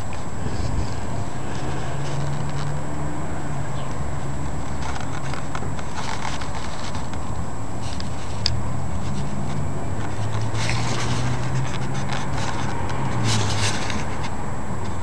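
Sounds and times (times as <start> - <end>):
rustling bursts: 4.5 - 14.4.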